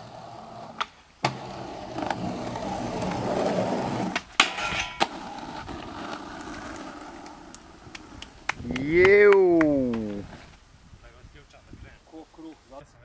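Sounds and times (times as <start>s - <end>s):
skateboard grinding on metal: 0.0s - 7.8s
skateboard grinding on concrete: 0.0s - 8.6s, 9.6s - 10.6s
skateboard wheels rolling on asphalt: 0.0s - 11.2s.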